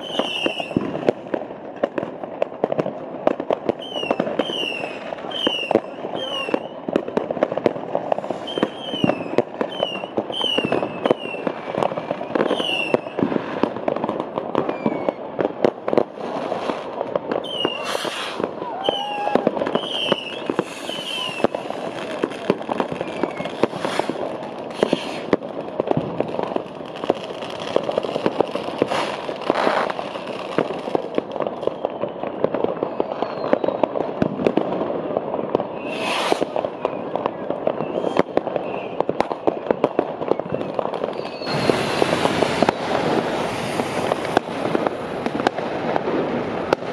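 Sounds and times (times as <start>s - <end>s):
firework descending whistles: 0.0s - 1.0s, 3.7s - 6.9s, 8.1s - 13.7s, 14.6s - 15.3s, 16.3s - 25.4s, 27.8s - 30.6s, 31.5s - 34.1s, 35.4s - 39.3s, 40.1s - 46.0s
fireworks bangs and crackling: 0.0s - 46.9s.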